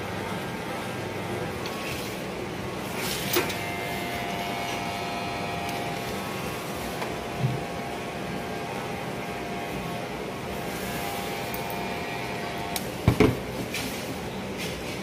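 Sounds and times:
hair clipper buzzing: 3.4s - 12.9s.

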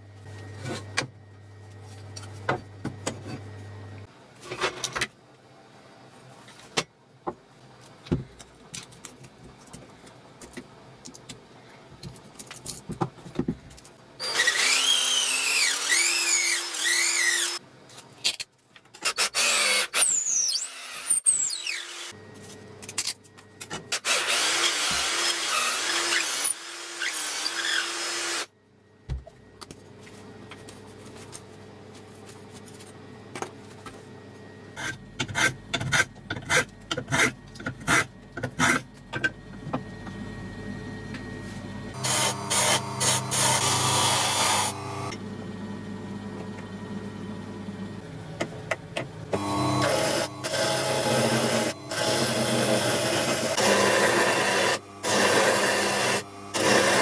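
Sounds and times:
power drill motor whine: 14.2s - 17.6s, 41.9s - 45.1s, 49.4s - 57.0s.

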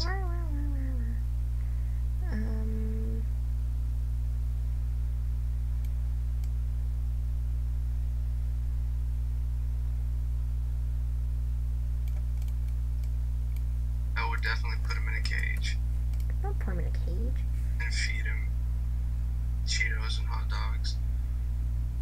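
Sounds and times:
low electrical hum: 0.0s - 22.0s
faint clicks: 12.0s - 13.7s, 15.3s - 16.4s.

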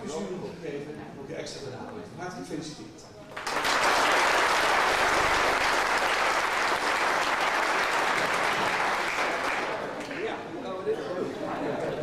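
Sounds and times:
audience applauding: 3.3s - 10.4s.

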